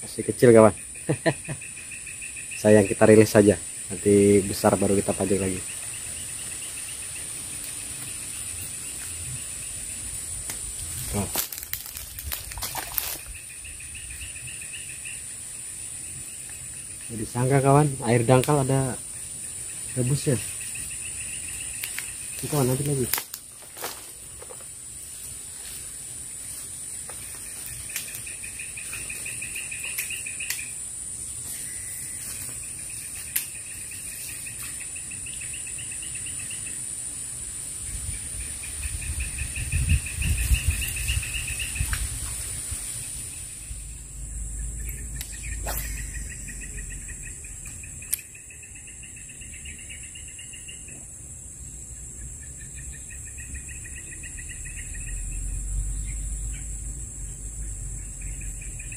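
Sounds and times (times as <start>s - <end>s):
high-pitched insect drone: 0.0s - 58.9s
pulsing trills: 43.4s - 50.2s
sharp clicks: 47.7s - 48.3s.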